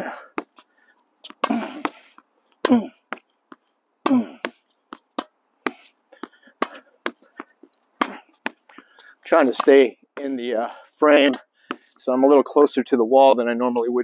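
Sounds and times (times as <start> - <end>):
ball bouncing on hard court: 2.7 - 10.4.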